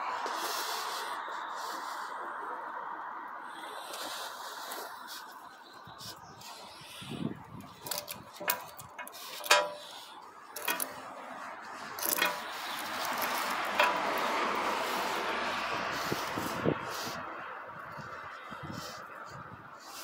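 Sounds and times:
handling hiss: 6.0 - 17.2
watch bracelet clinking and clicking: 7.6 - 14.4.

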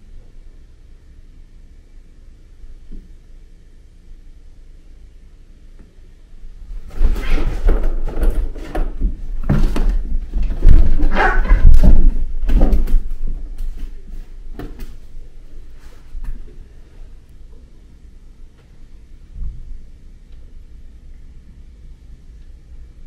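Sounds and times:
cats play-fighting scuffle: 6.6 - 16.7
thumps and knocks: 6.9 - 13.8.

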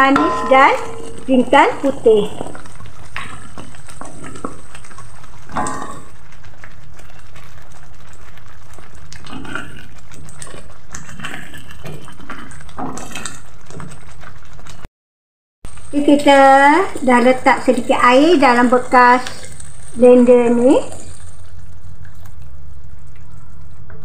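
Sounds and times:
paste sizzling in oil: 0.0 - 14.8, 15.7 - 23.2
wooden spatula scraping wok: 0.0 - 14.8.

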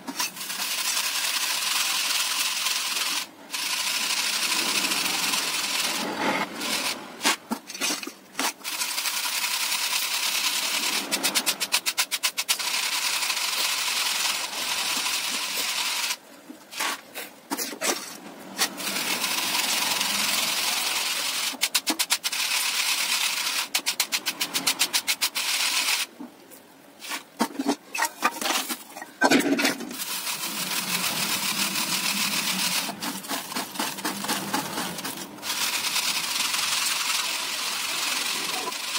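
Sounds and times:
peanuts rattling in plastic colander: 29.9 - 38.9.

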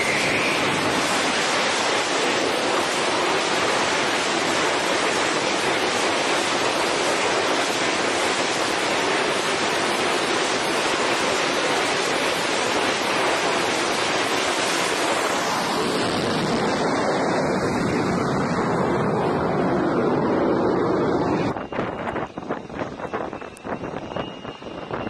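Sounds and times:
jet engine roaring: 0.0 - 25.0.

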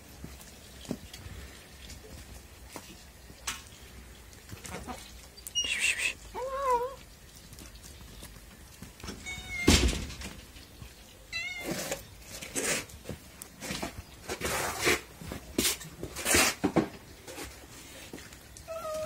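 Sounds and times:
short high squeaks: 5.5 - 6.2
cat meowing: 5.5 - 7.0, 9.2 - 9.9, 11.3 - 11.8, 18.7 - 19.0.

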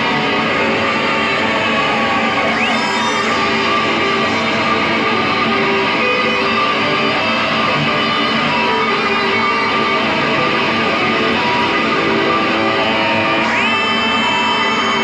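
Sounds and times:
electric guitar noise music: 0.0 - 15.0
rising guitar squeal: 0.0 - 15.0.

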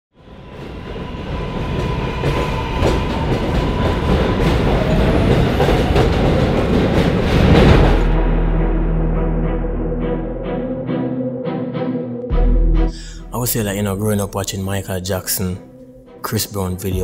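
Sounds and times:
subway train rumbling past: 0.1 - 10.0.

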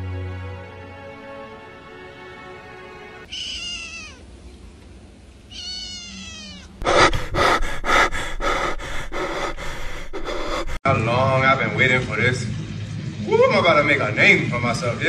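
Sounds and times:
kitten meowing: 3.3 - 4.2, 5.5 - 6.8.

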